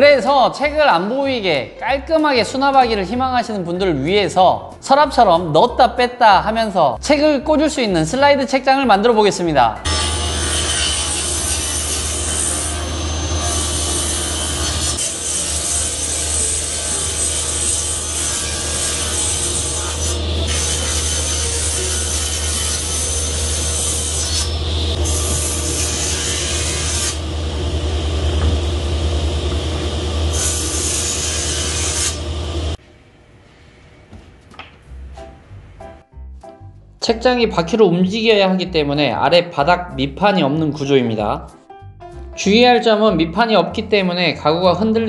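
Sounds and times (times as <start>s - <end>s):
table saw cutting wood: 9.9s - 32.8s.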